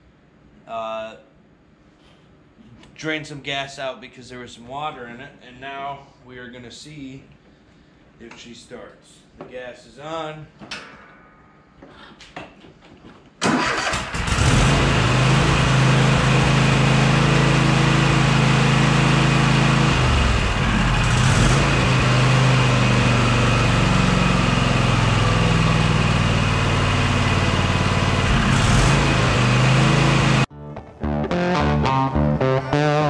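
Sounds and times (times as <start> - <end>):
lawn tractor engine running: 13.4 - 30.5.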